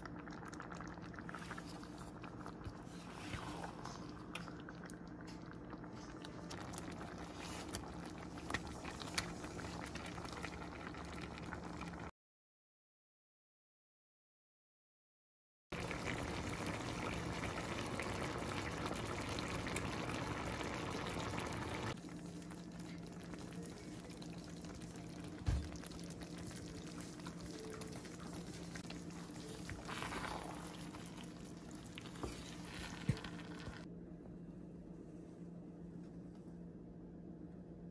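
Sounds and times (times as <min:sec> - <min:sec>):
casserole bubbling in a skillet: 0:00.0 - 0:12.1, 0:15.7 - 0:33.9
low steady hum: 0:00.0 - 0:12.1, 0:15.8 - 0:37.9.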